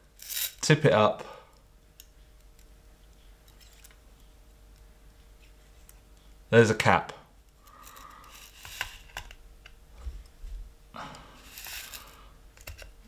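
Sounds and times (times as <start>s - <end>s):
metal rubbing: 11.4s - 12.2s.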